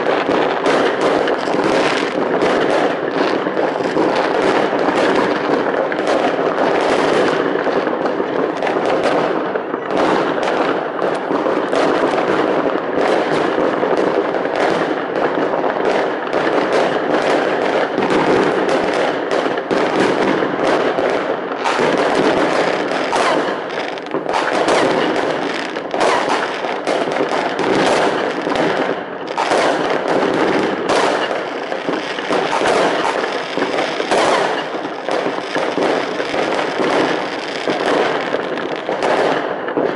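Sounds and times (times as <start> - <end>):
fireworks bangs and crackling: 0.0 - 39.9.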